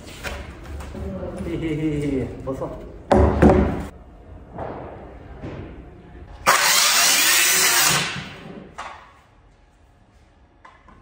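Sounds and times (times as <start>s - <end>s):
circular saw cutting panel: 6.5s - 8.4s.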